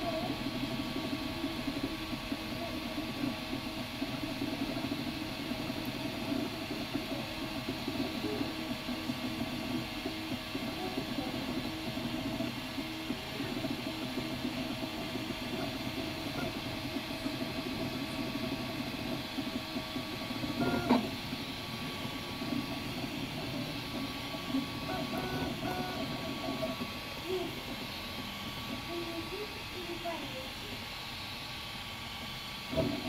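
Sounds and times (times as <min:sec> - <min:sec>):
stepper motors whirring: 0:00.0 - 0:33.0
printer knock: 0:06.2 - 0:27.0.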